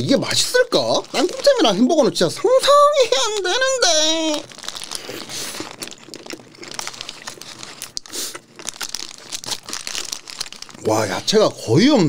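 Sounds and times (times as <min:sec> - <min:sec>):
paper wrapper crinkling: 0:00.1 - 0:12.0
person chewing: 0:03.1 - 0:11.3.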